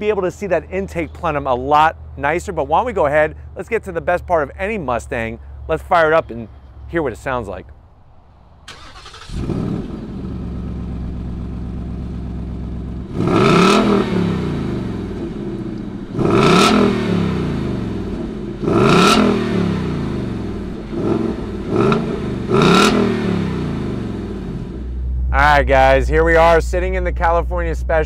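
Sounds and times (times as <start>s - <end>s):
car engine idling: 7.7s - 28.0s
car engine revving: 8.7s - 25.5s.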